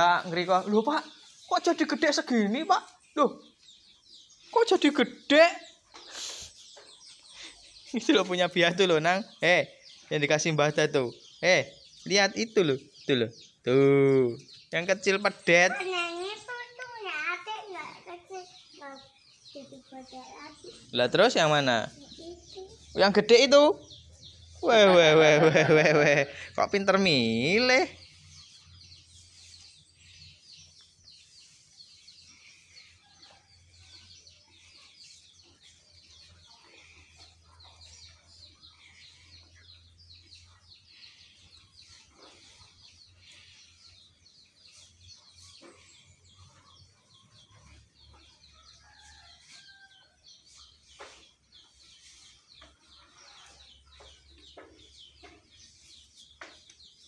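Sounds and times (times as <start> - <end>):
chickens clucking: 0.0 - 57.0
small birds chirping: 0.0 - 57.0.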